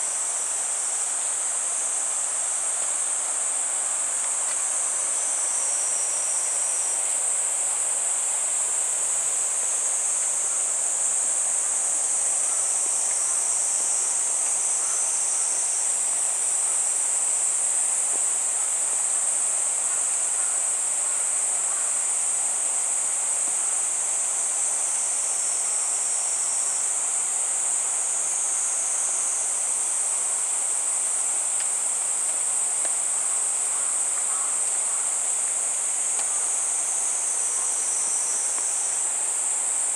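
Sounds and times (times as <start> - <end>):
outdoor background hiss: 0.0 - 39.9
insects shrilling: 32.6 - 39.4.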